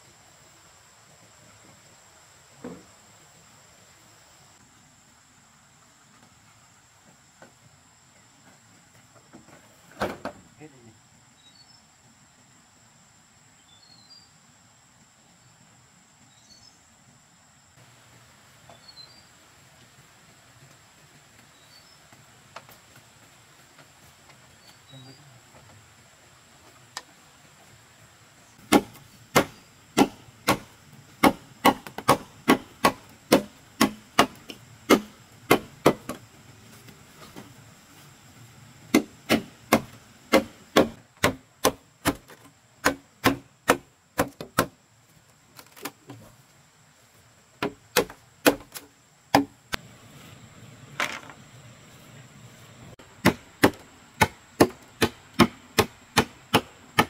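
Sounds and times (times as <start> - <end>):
machete chopping bamboo: 28.6 - 36.2, 38.9 - 44.8, 47.6 - 49.6, 53.2 - 57.0.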